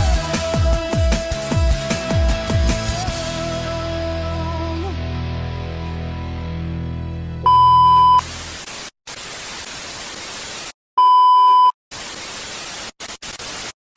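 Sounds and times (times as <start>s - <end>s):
high test-tone beep: 7.5s - 8.2s, 11.0s - 11.8s
harsh tv static: 8.1s - 10.8s, 11.9s - 13.8s.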